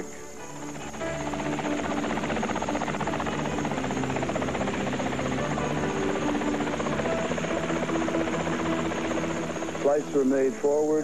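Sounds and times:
helicopter engine running: 0:00.0 - 0:11.0
helicopter rotor chopping: 0:00.5 - 0:11.0.

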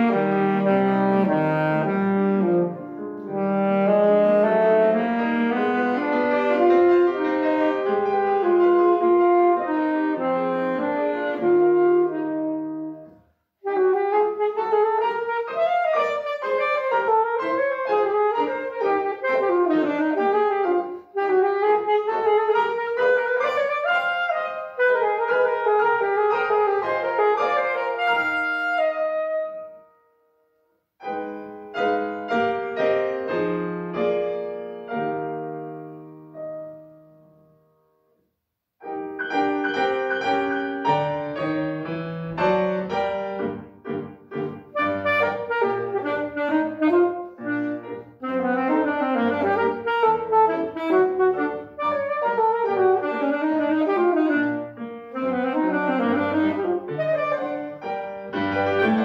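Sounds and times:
saxophone: 0:00.0 - 0:29.9, 0:44.5 - 0:59.0
grand piano: 0:00.0 - 0:59.0.

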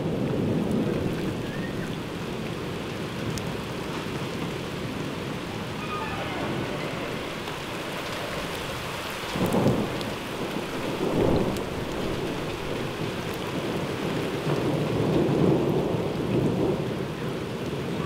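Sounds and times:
heavy rain falling: 0:00.0 - 0:18.0
thunder rumbling: 0:00.0 - 0:18.0.

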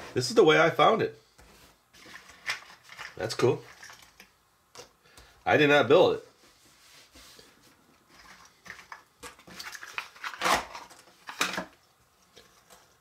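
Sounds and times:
puzzle pieces scraping and clicking: 0:02.0 - 0:04.3, 0:08.1 - 0:11.7.

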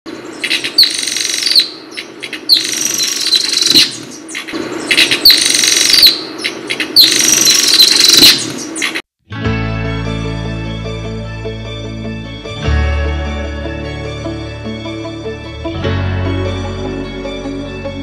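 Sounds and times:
bird chirps: 0:00.1 - 0:09.0.

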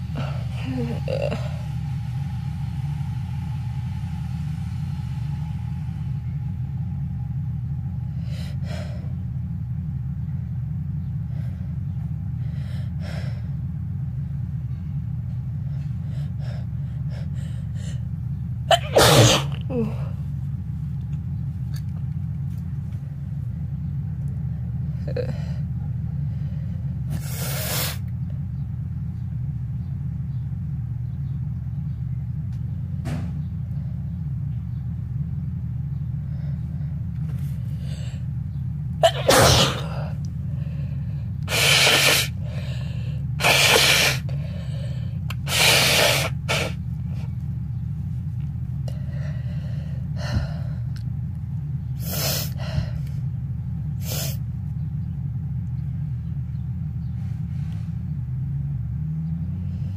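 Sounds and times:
steady low hum: 0:00.0 - 0:59.9
nose blowing: 0:18.7 - 0:19.9, 0:39.0 - 0:40.1, 0:41.5 - 0:42.8, 0:43.4 - 0:44.3, 0:45.3 - 0:46.8
person sneezing: 0:18.7 - 0:20.0, 0:39.0 - 0:40.1.

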